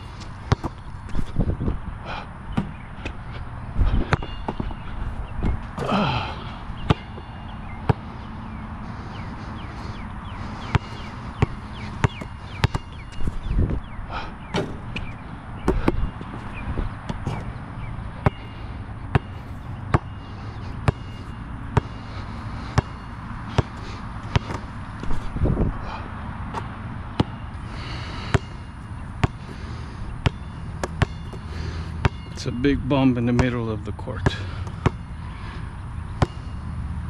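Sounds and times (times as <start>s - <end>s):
basketball bouncing on court: 0.4s - 1.2s, 2.5s - 3.2s, 4.0s - 4.8s, 5.4s - 8.3s, 10.6s - 13.9s, 14.5s - 17.6s, 18.2s - 20.2s, 20.8s - 22.0s, 22.6s - 25.3s, 26.5s - 27.4s, 28.3s - 29.5s, 30.2s - 32.4s, 33.2s - 35.1s, 36.2s - 36.5s.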